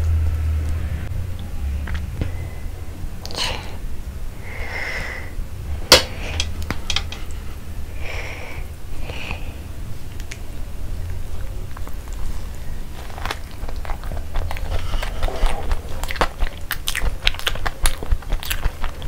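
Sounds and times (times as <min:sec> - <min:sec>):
soft breathy sounds: 0:02.1 - 0:10.0.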